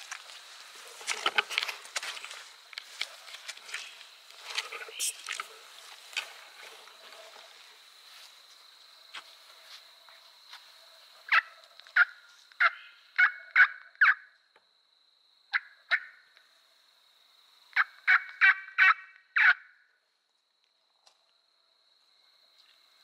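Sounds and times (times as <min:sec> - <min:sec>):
turkey yelping: 0:11.3 - 0:14.2, 0:17.8 - 0:19.7.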